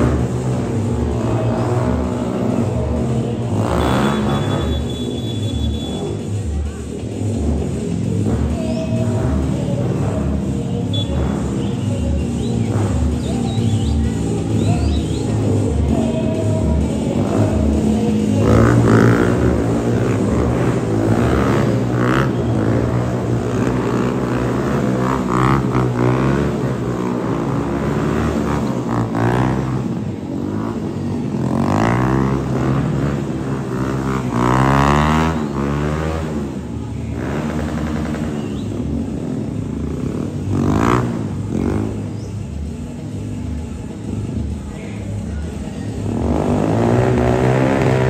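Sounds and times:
motorcycle engines revving: 0:00.0 - 0:48.0.

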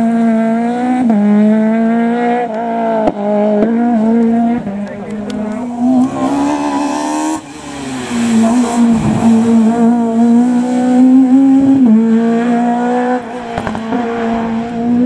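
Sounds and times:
rally car engine at high revs: 0:00.0 - 0:15.0.

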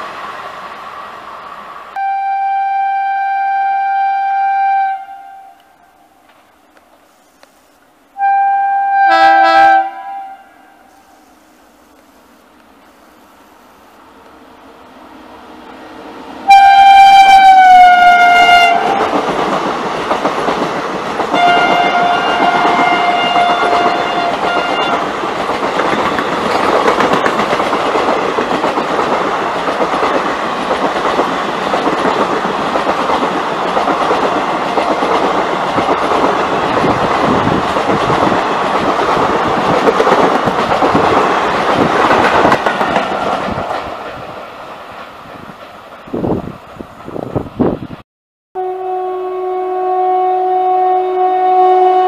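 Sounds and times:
train horn blasts: 0:02.0 - 0:06.0, 0:08.2 - 0:11.3, 0:16.4 - 0:19.1, 0:21.4 - 0:25.0, 0:48.6 - 0:52.0
train wheels rushing on rails: 0:09.2 - 0:48.0.

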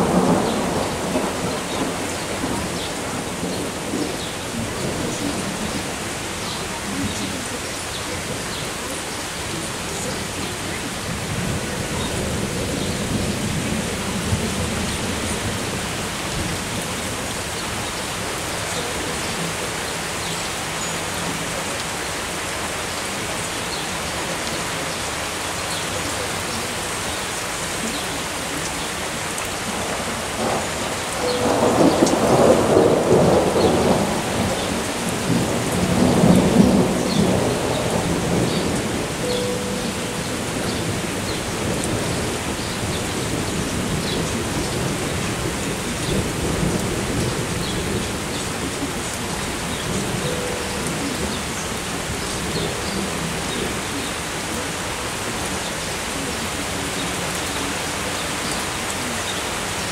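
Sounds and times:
steady rain: 0:00.0 - 0:59.9
thunder rolling: 0:29.8 - 0:39.6.

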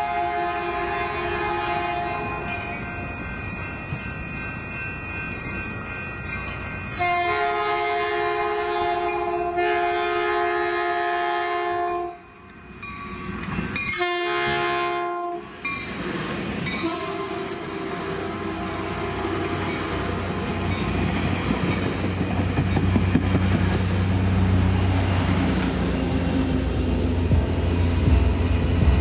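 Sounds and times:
train horn blasts: 0:00.0 - 0:03.0, 0:07.0 - 0:12.3, 0:13.9 - 0:15.5, 0:16.8 - 0:20.8
train rumble: 0:00.0 - 0:29.0.

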